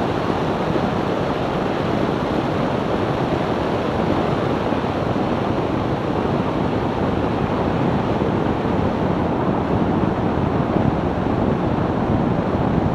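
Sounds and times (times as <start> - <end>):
wind and road noise in car: 0.0 - 12.9.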